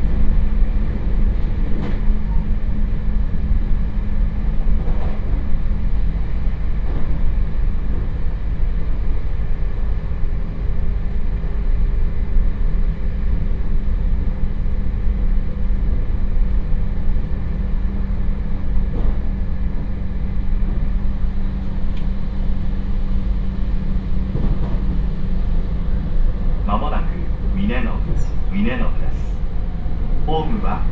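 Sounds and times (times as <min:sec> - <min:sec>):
low hum: 0:00.0 - 0:30.9
train wheels rumbling on rails: 0:00.0 - 0:30.9.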